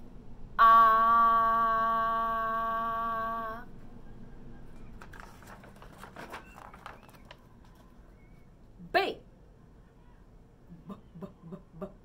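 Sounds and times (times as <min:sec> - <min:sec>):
woman holding a long aaah: 0:00.6 - 0:03.7
book page turning: 0:05.0 - 0:08.0.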